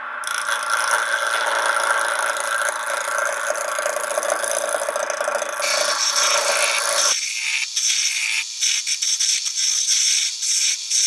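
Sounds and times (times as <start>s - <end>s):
wood lathe running: 0.3s - 7.1s.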